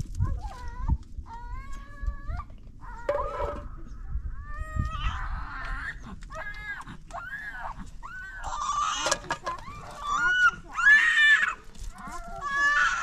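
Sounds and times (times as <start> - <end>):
chickens clucking and squawking: 3.1 - 11.2.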